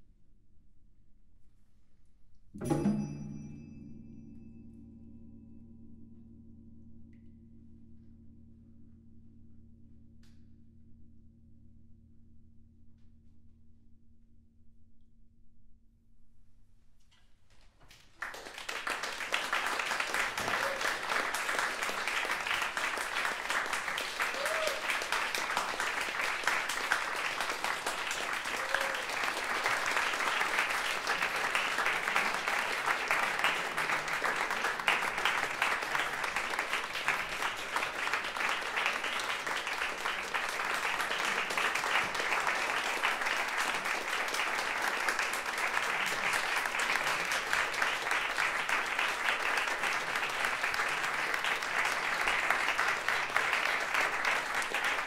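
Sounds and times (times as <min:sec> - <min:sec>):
audience applauding: 0:17.9 - 0:55.0.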